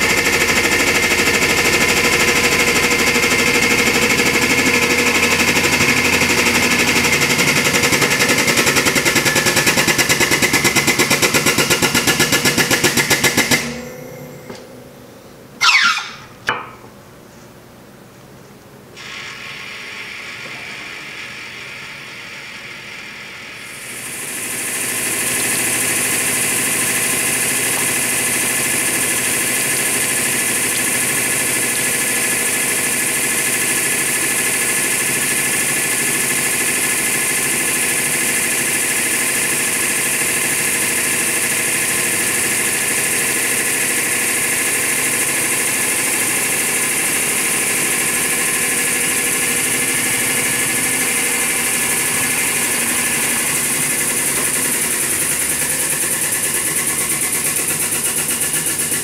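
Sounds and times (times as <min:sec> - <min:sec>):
pump motor humming with hiss: 0:19.0 - 0:32.7.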